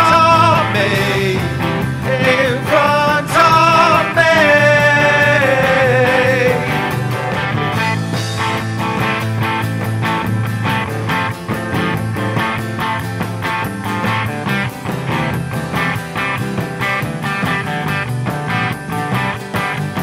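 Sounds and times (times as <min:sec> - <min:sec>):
rock guitar chords strummed: 0:00.0 - 0:20.0.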